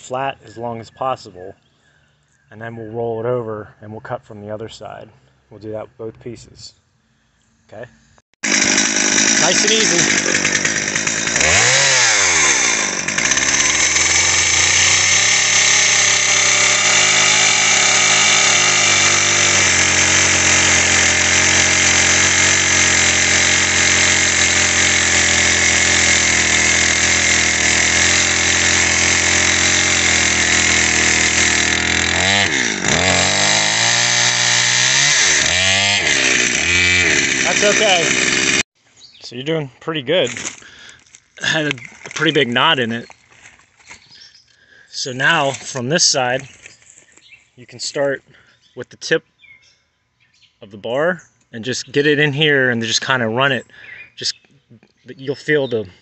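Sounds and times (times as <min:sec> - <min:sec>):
chainsaw cutting log: 0:08.4 - 0:38.7, 0:40.2 - 0:44.2.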